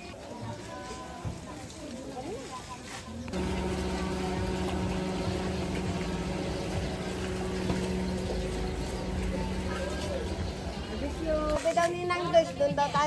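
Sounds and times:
car engine idling: 3.3s - 11.6s.

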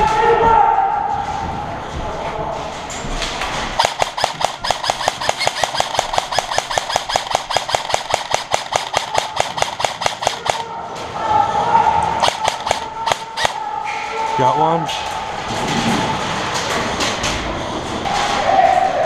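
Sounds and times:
airsoft gun rapid shots: 3.8s - 10.7s, 12.2s - 13.6s.

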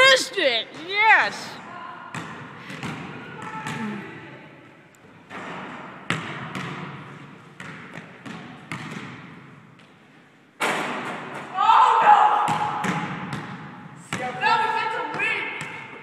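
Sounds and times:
basketball bouncing on court: 2.1s - 4.1s, 5.3s - 10.0s, 12.4s - 16.0s.

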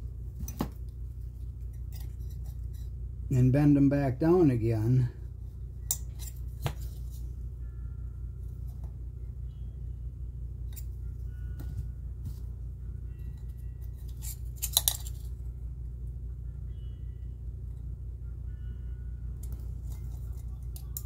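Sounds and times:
steady low hum: 0.0s - 21.0s
metal tool clicking and scraping: 1.7s - 2.9s, 5.9s - 6.4s, 14.0s - 15.2s.

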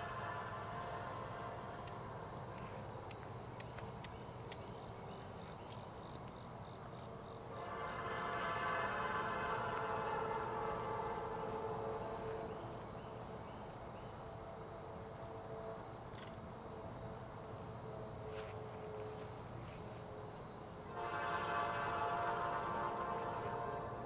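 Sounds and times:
locomotive air horn: 0.0s - 2.7s, 7.5s - 13.1s, 20.9s - 24.0s
insects chirping faintly: 0.0s - 24.0s.

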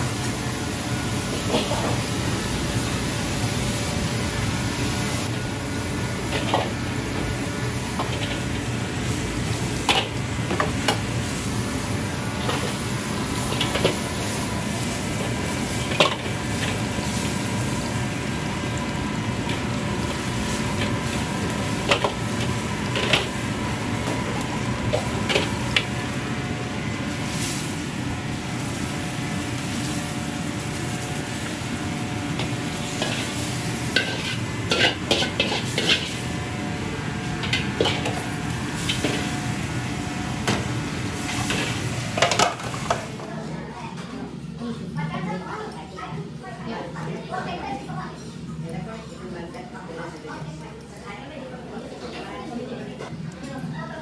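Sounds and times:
curry sauce sizzling: 0.0s - 43.2s
gas burner rushing: 0.0s - 43.2s
ladle stirring in wok: 28.7s - 39.7s, 40.4s - 43.2s.

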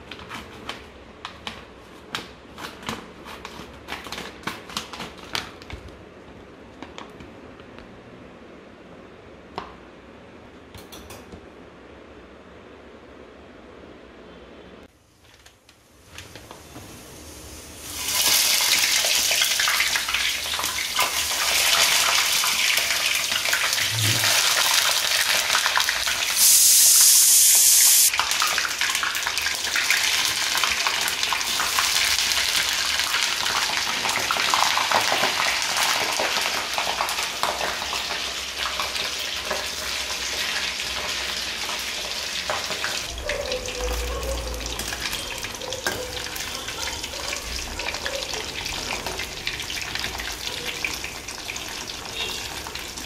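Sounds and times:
food deep-frying in oil: 16.0s - 53.0s.

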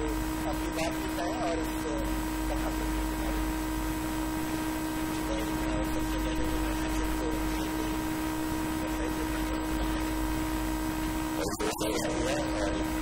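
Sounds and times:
faint indistinct speech: 0.0s - 3.6s, 5.1s - 10.0s, 11.4s - 13.0s
constant low tone: 0.0s - 13.0s
sound system hum and hiss: 0.0s - 13.0s.

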